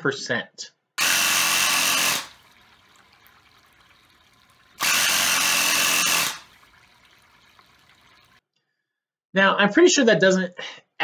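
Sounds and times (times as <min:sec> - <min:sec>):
air compressor running: 0:01.0 - 0:02.4, 0:04.8 - 0:06.4.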